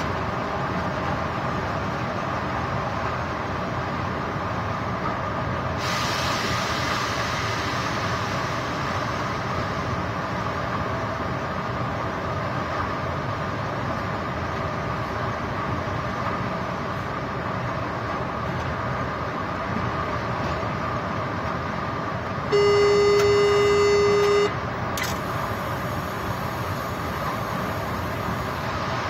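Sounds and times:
train cab running noise: 0.0 - 29.0
electronic warning tone: 22.5 - 25.2
sharp click: 25.0 - 25.3.

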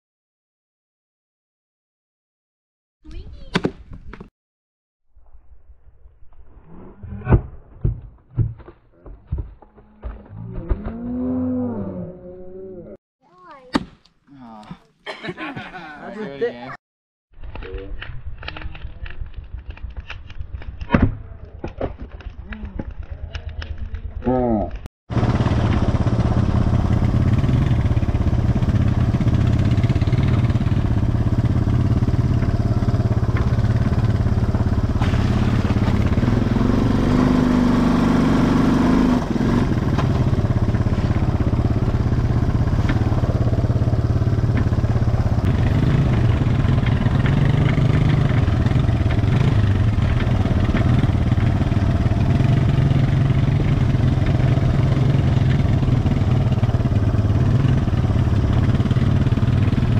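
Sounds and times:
atv engine running: 25.1 - 59.9.

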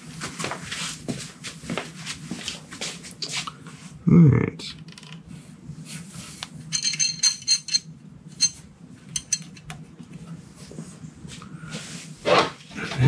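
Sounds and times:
metal clinking: 6.7 - 9.7.

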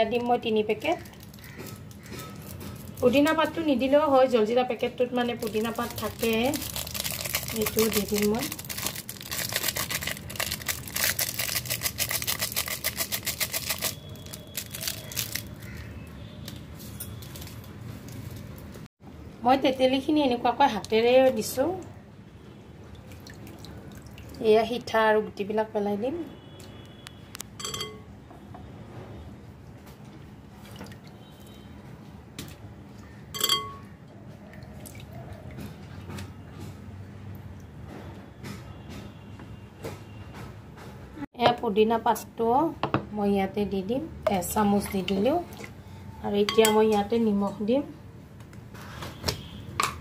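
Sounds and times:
plastic sachet shaken and tapped: 5.4 - 15.5
clink against glass bowl: 27.6 - 28.1, 33.4 - 33.9, 46.5 - 47.0.

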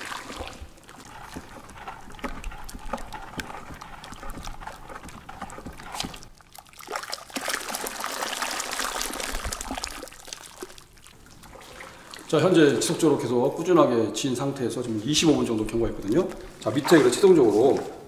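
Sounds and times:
liquid sloshing in plastic tub: 0.0 - 13.7, 14.8 - 18.0
stick knocking tub: 0.3 - 6.3.

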